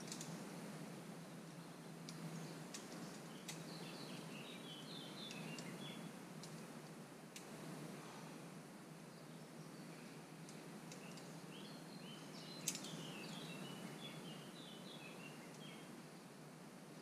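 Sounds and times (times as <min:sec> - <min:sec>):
small bird chirping: 0:02.1 - 0:06.1, 0:09.1 - 0:15.9.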